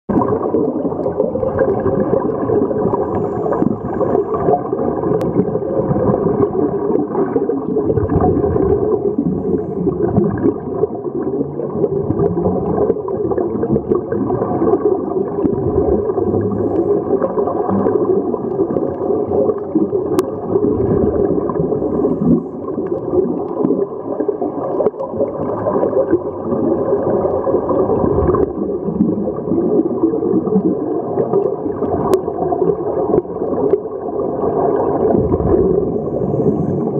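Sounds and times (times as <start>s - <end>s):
bubbles gurgling: 0.1s - 36.9s
underwater regulator breathing: 2.7s - 5.5s, 9.0s - 10.1s, 16.0s - 17.2s, 21.6s - 22.8s, 35.8s - 36.9s.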